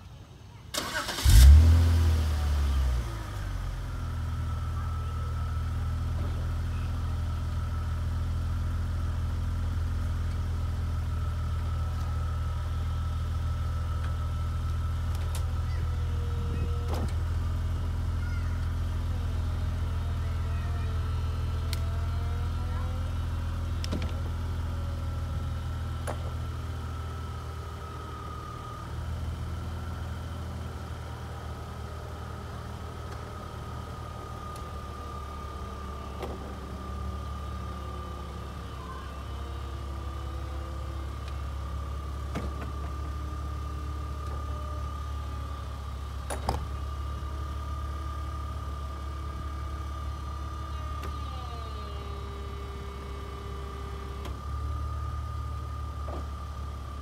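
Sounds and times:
car engine idling: 0.2s - 57.0s.

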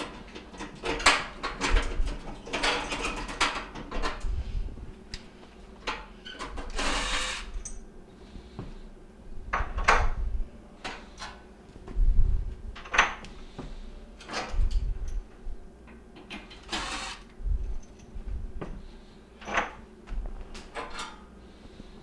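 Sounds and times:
cordless drill running: 6.8s - 7.5s, 16.6s - 17.2s.

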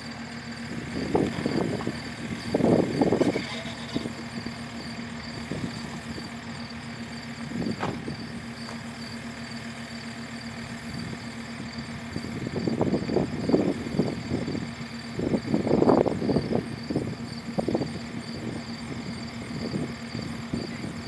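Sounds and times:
distant diesel engine idling: 0.0s - 21.0s
knock with short clatter: 7.8s - 8.1s.

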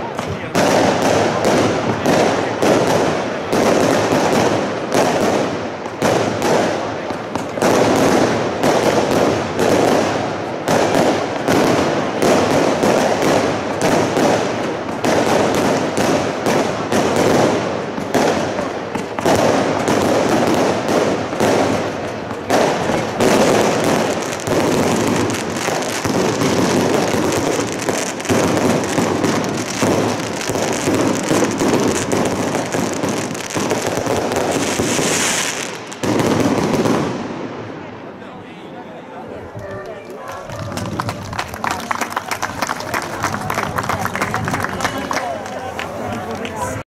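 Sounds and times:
fireworks crackling: 0.0s - 38.2s, 39.2s - 46.8s
firework shell bursts and bangs: 0.1s - 37.3s.

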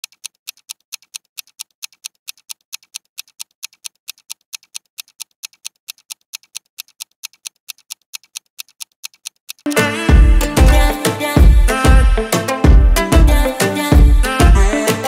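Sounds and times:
rapid mechanical ticking: 0.0s - 9.7s.

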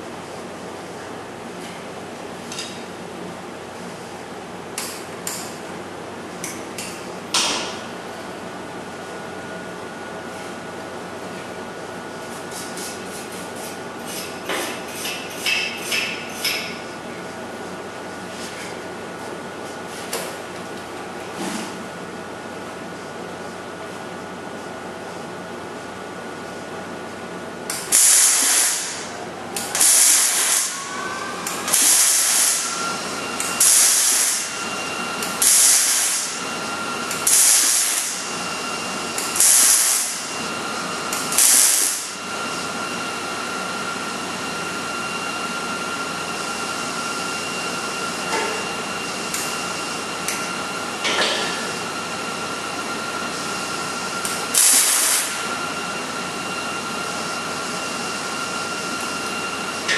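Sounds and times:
welding arc bursts: 27.8s - 30.8s, 31.7s - 32.8s, 33.5s - 34.5s, 35.2s - 36.4s, 37.2s - 38.3s, 39.3s - 40.3s, 41.2s - 42.2s, 54.3s - 55.4s.

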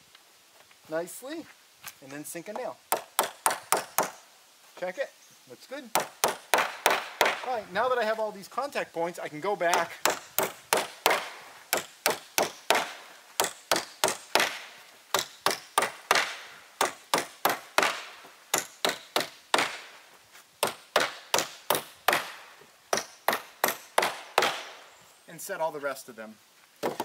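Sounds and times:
hammer driving nails into wood: 2.9s - 4.2s, 5.9s - 7.5s, 9.7s - 19.9s, 20.6s - 24.8s.

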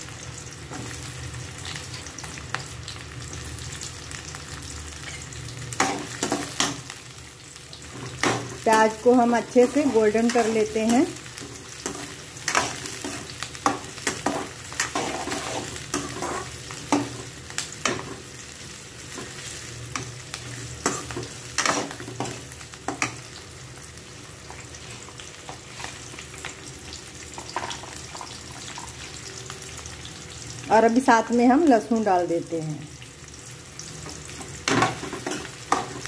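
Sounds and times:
onions sizzling in hot oil: 0.0s - 36.0s
metal spoon scraping a pan: 9.6s - 18.3s.

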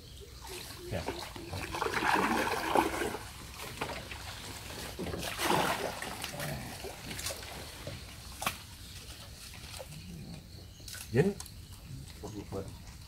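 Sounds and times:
water splashing and sloshing: 0.3s - 10.0s.

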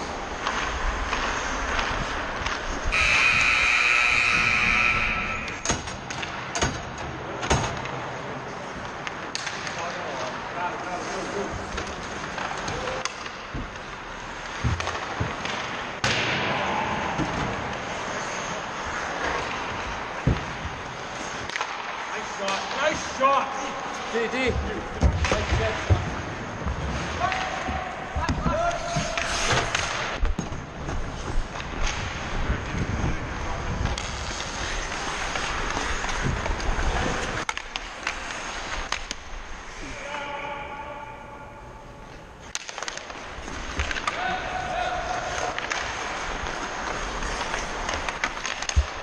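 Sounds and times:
ice skate blades scraping ice: 0.0s - 5.6s, 28.5s - 40.0s, 45.1s - 49.0s
skates scraping on ice: 0.0s - 6.5s, 7.2s - 49.0s.

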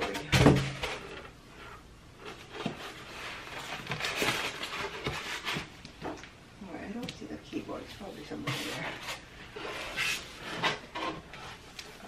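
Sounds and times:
packaging wrap rustling: 2.2s - 6.3s.

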